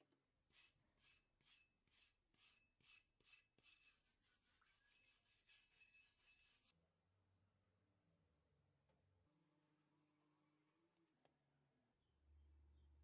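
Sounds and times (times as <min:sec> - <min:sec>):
scratchy scrubbing of metal: 0:00.5 - 0:06.7.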